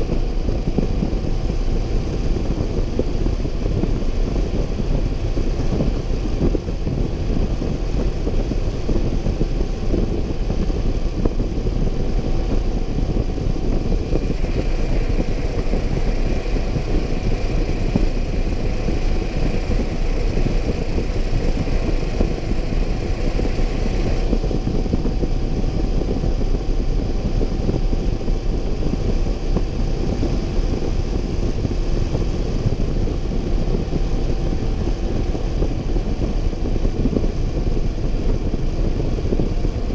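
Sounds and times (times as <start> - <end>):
motorcycle running: 0.0 - 39.9
wind noise on camera: 0.0 - 39.9.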